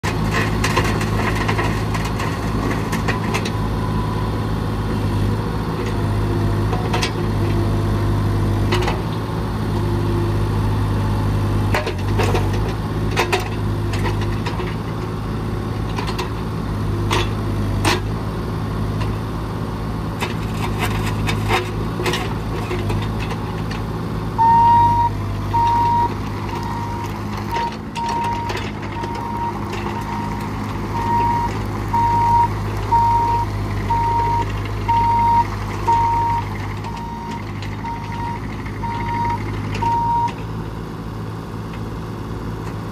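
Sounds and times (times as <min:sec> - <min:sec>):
diesel excavator engine running: 0:00.0 - 0:42.9
travel alarm beeping: 0:24.4 - 0:40.3.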